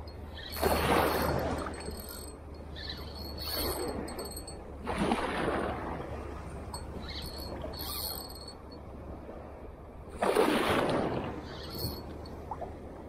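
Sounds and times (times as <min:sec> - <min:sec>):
water splashing against rocks: 0:00.5 - 0:02.3, 0:10.2 - 0:12.7.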